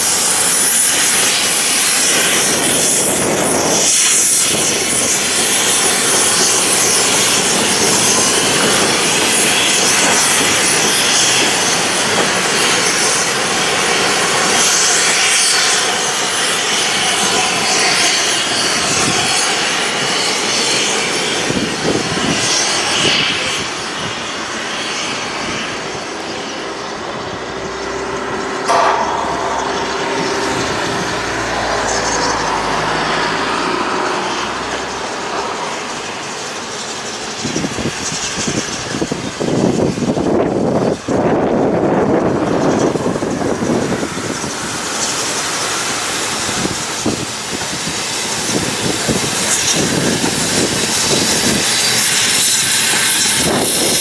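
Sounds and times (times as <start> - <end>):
low rumble of approaching train: 0.0 - 54.0
steam locomotive exhaust rushing: 0.0 - 54.0
sharp knock: 28.7 - 32.2.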